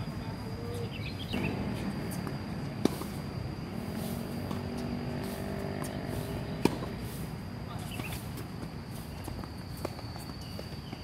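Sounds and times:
engine hum: 0:01.2 - 0:09.8
tennis ball striking racket: 0:01.4 - 0:03.3, 0:04.3 - 0:07.0.

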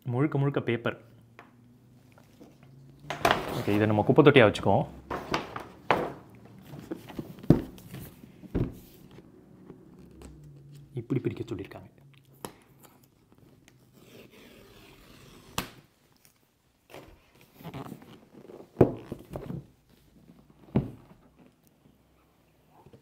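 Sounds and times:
cardboard sleeve scraping: 0:13.8 - 0:15.6.

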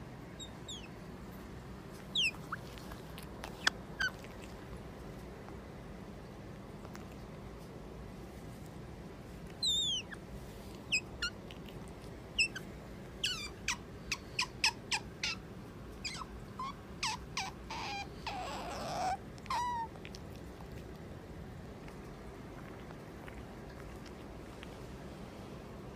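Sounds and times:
otter chirps and squeaks: 0:00.4 - 0:00.9, 0:02.0 - 0:04.6, 0:09.6 - 0:10.2, 0:10.8 - 0:15.4, 0:16.0 - 0:19.9
otter raspy squeal: 0:02.1 - 0:04.2, 0:16.0 - 0:19.9.

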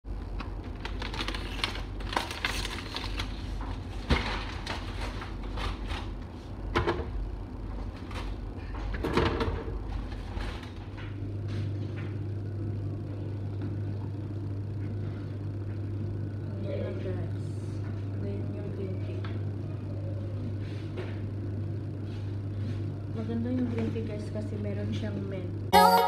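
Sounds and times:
steady low hum: 0:00.1 - 0:26.0.

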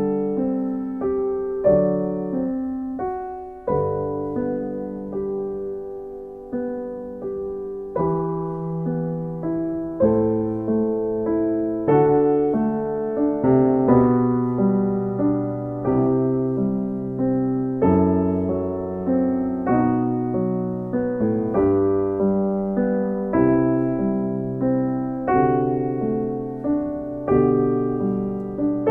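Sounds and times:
piano music: 0:00.0 - 0:28.9.

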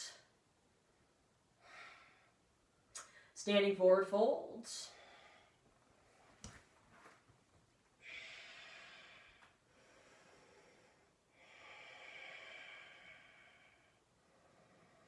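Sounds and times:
person breathing through nose: 0:08.0 - 0:15.0.

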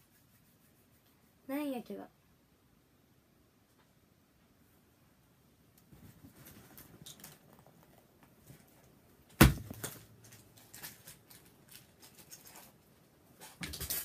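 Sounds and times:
handling clicks and rustles: 0:05.8 - 0:14.0.

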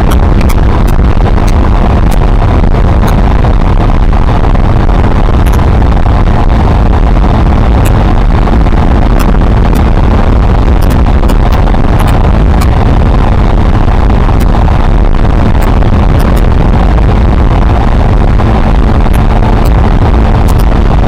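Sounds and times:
motorcycle engine running: 0:00.0 - 0:21.0
wind noise on microphone: 0:00.0 - 0:21.0.

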